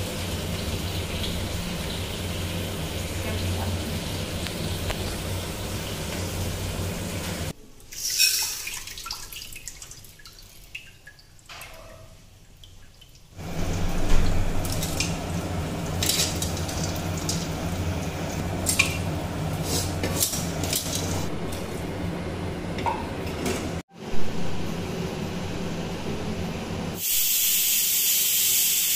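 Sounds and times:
steady background hum: 12.8s - 27.0s.

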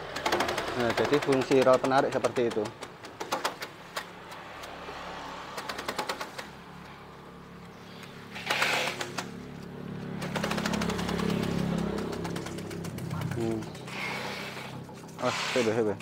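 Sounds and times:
grass chopper rapid clicking: 0.0s - 3.7s, 8.3s - 16.0s.

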